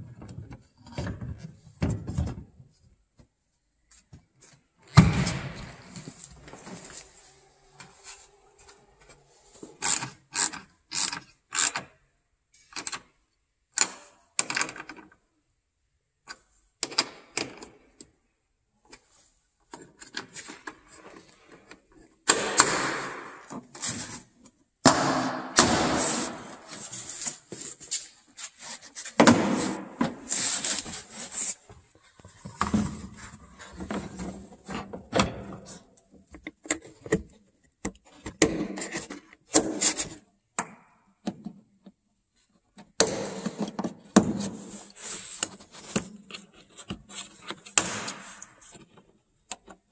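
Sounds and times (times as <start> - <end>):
plastic scraping and rubbing: 44.4 - 49.2.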